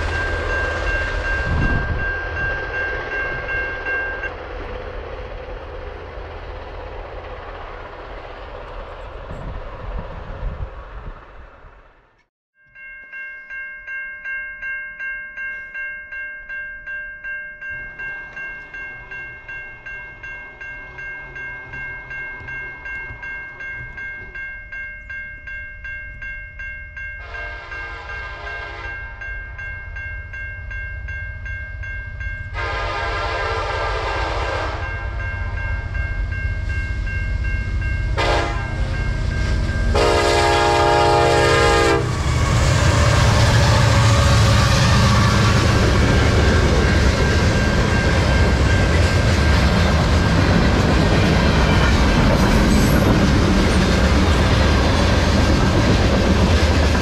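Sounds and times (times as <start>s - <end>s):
level-crossing bell ringing: 0.0s - 4.4s, 12.6s - 32.8s, 34.7s - 42.0s, 44.5s - 53.2s
locomotive rumble: 0.0s - 12.2s, 30.6s - 57.0s
train horn: 27.2s - 29.2s, 32.5s - 35.2s, 38.0s - 46.4s.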